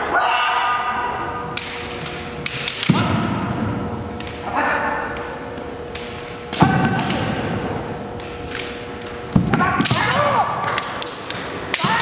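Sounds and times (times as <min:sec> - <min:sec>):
fighters shouting: 0:09.5 - 0:10.8, 0:11.7 - 0:12.0.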